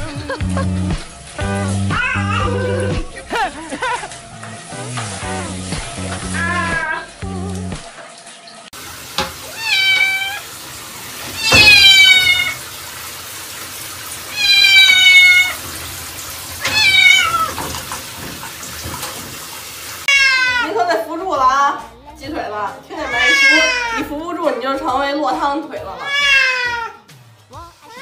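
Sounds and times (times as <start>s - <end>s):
cat meowing loudly: 1.9s - 2.9s, 6.4s - 7.1s, 9.4s - 10.4s, 11.3s - 12.6s, 14.3s - 15.6s, 16.6s - 17.6s, 20.1s - 20.7s, 23.0s - 24.0s, 26.0s - 27.0s.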